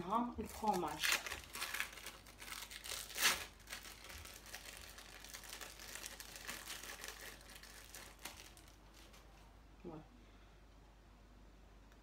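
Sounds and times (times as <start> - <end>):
plastic film crinkling: 0.0 - 9.5.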